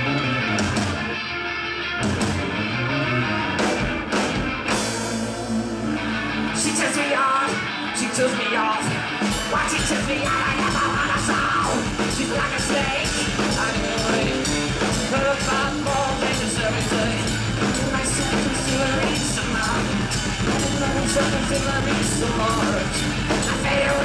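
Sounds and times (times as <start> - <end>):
bass guitar: 0.0 - 24.0
electric guitars: 0.0 - 24.0
drum kit beat: 3.6 - 7.0, 8.8 - 24.0
person singing: 4.7 - 24.0.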